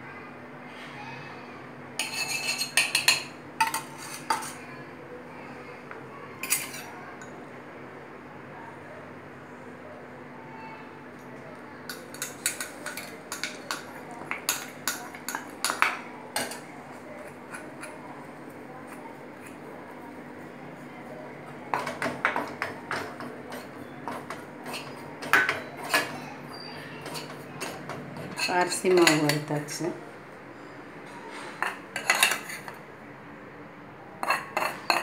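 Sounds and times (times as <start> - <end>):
spoon scraping a metal pan: 2.0 - 4.6, 22.9 - 29.5, 31.3 - 32.8, 34.2 - 35.0.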